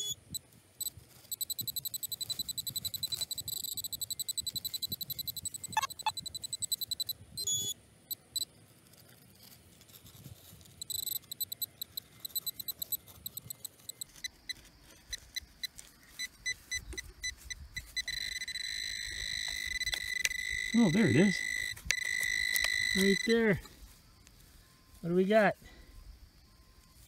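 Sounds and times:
metal detector pinpointer beeping: 0:00.0 - 0:08.5, 0:10.6 - 0:25.2.

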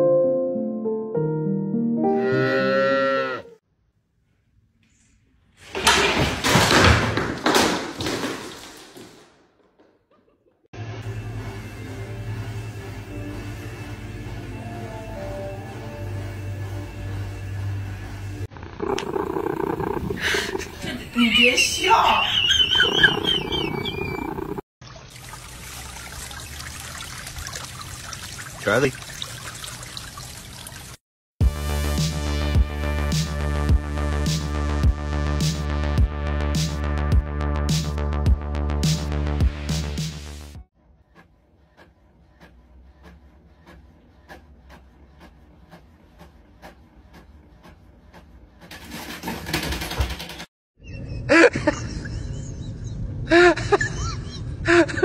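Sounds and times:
things crashing to hard floor: 0:05.6 - 0:10.0
water trickling: 0:24.8 - 0:31.0.

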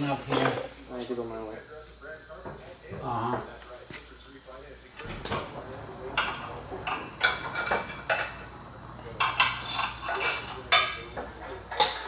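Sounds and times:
tools clanking on steel bumper: 0:05.0 - 0:12.0.

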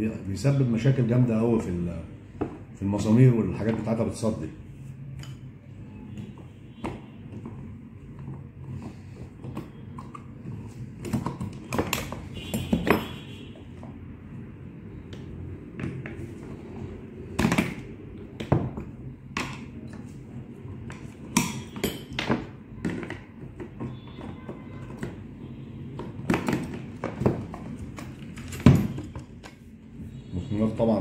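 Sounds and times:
man talking: 0:02.8 - 0:04.6, 0:30.4 - 0:31.0.

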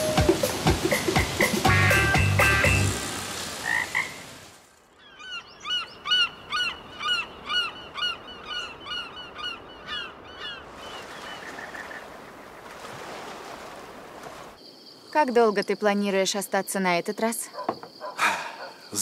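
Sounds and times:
background music: 0:00.0 - 0:03.2.

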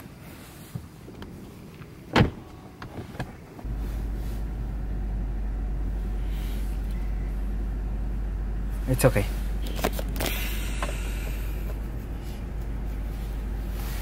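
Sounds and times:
low rumble in car cabin: 0:00.0 - 0:14.0
car door thump: 0:02.1 - 0:03.2.

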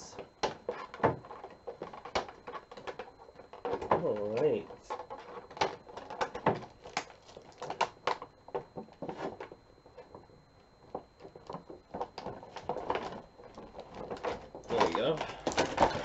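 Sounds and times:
stiff plastic packaging crackling: 0:05.4 - 0:08.4.

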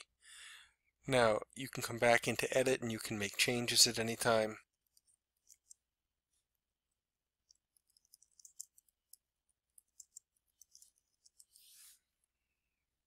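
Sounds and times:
keyboard typing: 0:07.4 - 0:11.6.

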